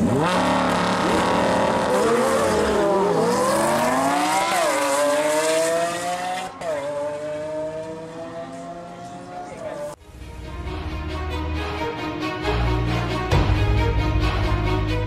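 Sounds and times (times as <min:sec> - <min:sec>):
car engines at full throttle: 0:00.0 - 0:10.0.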